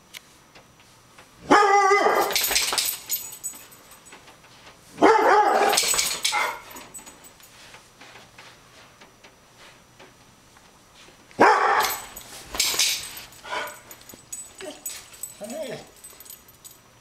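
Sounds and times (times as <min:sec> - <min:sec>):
dog barking: 0:01.4 - 0:02.4, 0:05.0 - 0:06.7, 0:11.4 - 0:12.1, 0:13.5 - 0:13.9.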